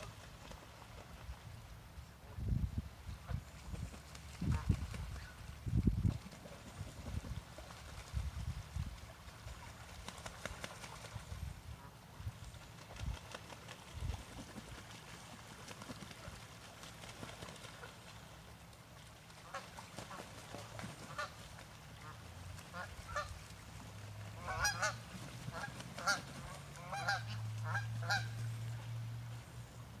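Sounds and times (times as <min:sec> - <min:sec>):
low steady hum: 0:00.0 - 0:30.0
geese honking: 0:24.4 - 0:28.4.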